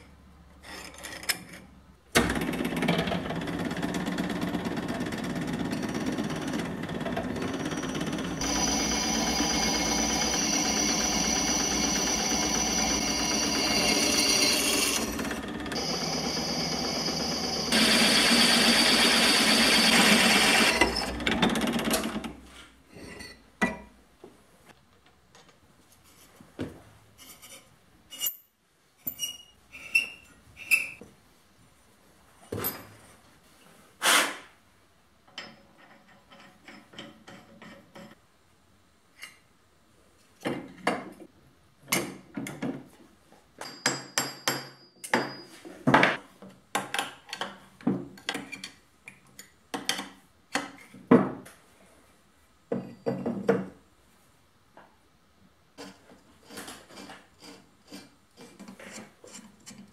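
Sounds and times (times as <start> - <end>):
metal tools knocking and clinking: 43.6 - 46.2.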